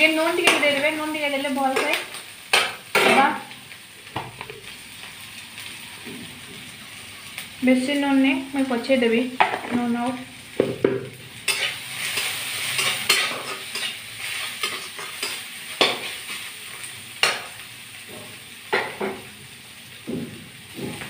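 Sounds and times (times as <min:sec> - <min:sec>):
food sizzling in oil: 0:00.0 - 0:21.0
spatula scraping metal pan: 0:11.5 - 0:16.3.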